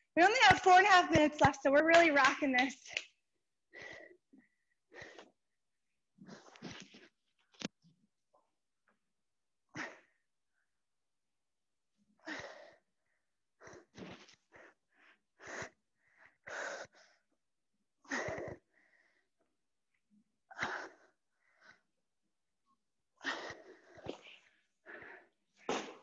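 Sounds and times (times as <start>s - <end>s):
woman breathing hard: 12.2s - 13.0s, 23.2s - 26.0s.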